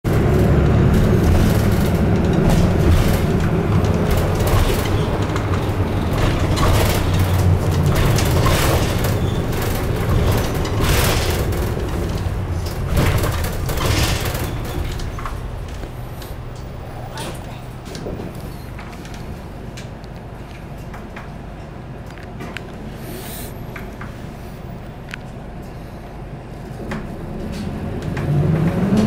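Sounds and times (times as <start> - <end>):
bus engine and road rumble: 0.0 - 29.0
short rattles and clatters: 0.1 - 19.4.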